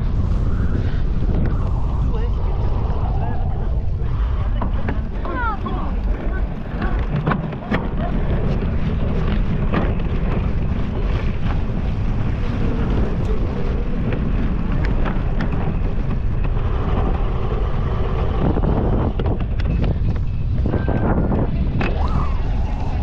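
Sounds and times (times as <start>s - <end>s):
wind noise on microphone: 0.0s - 23.0s.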